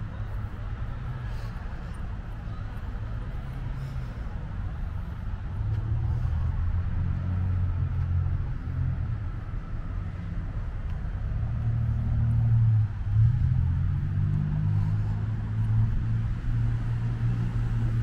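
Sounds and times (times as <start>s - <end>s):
passing car engines rumbling: 0.0s - 18.0s.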